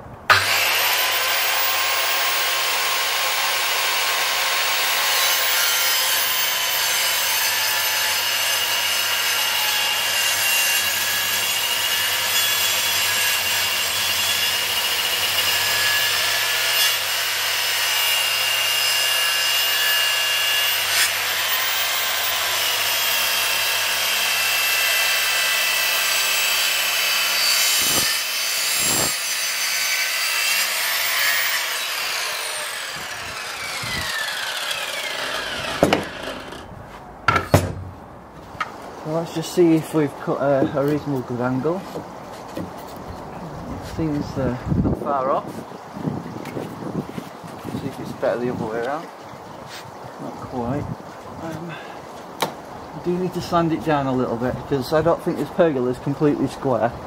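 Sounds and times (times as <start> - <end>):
circular saw cutting wood: 0.3 - 36.7.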